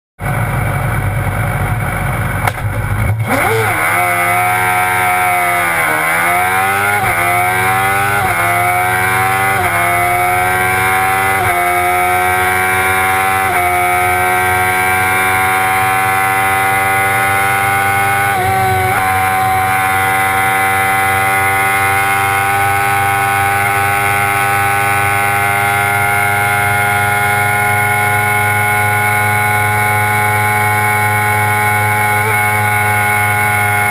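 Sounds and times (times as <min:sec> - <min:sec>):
quick gear upshifts: 0:00.2 - 0:33.9
race car engine revving: 0:01.7 - 0:33.9.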